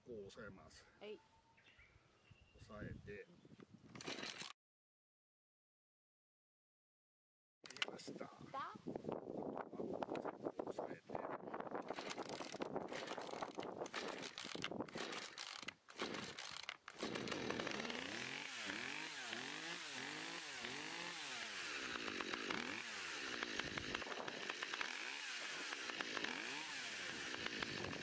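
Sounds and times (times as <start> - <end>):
chainsaw engine revving: 4.0 - 4.5, 11.8 - 28.0.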